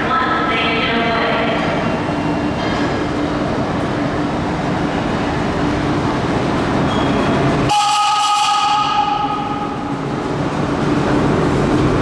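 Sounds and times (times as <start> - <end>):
subway train wheels rumbling: 0.0 - 12.0
high-pitched train squeal: 6.8 - 9.8.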